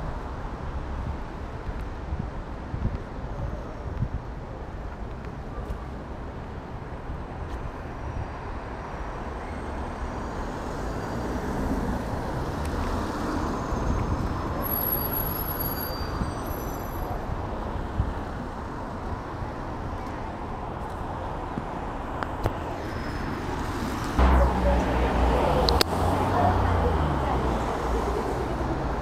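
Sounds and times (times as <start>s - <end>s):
road noise rumble: 0.0s - 29.0s
vehicle passing: 24.1s - 29.0s.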